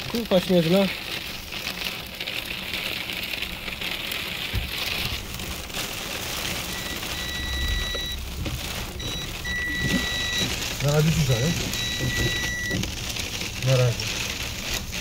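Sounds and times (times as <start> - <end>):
rain and snow pelting car: 0.0 - 15.0.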